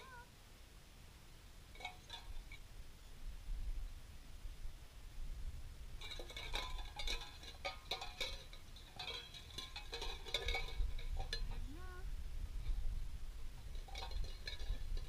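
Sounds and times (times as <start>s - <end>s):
tin cans rattling and clinking: 6.0s - 11.6s, 13.7s - 15.0s.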